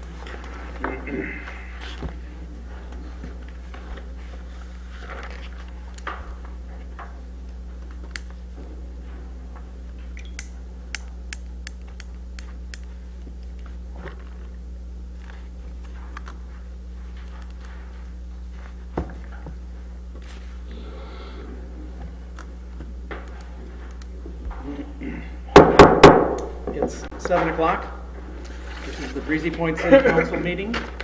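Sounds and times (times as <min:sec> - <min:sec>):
low room hum: 0:00.0 - 0:31.0
faint rustling and shuffling: 0:15.1 - 0:20.7.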